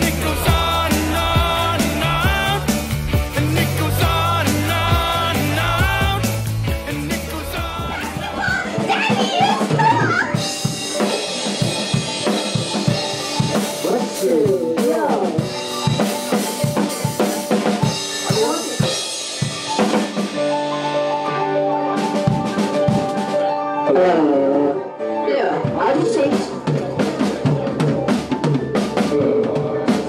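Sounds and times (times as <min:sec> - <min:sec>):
person singing: 0:00.0 - 0:10.6
drum kit beat: 0:00.0 - 0:23.9, 0:25.6 - 0:30.0
guitar and keyboard notes: 0:00.0 - 0:30.0.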